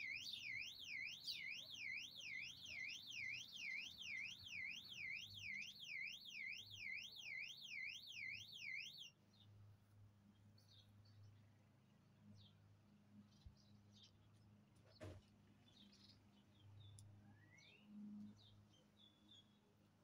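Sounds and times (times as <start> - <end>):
electronic alarm warbling: 0.0 - 9.1.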